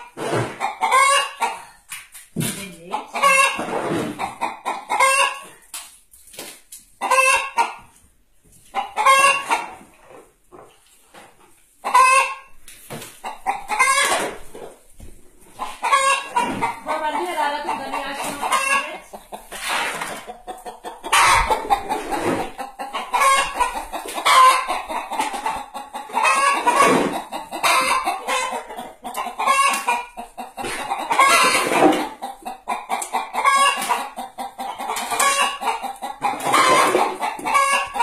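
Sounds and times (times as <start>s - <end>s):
hen cackling: 0.6s - 1.6s, 11.8s - 12.5s, 15.6s - 19.4s, 20.3s - 38.0s.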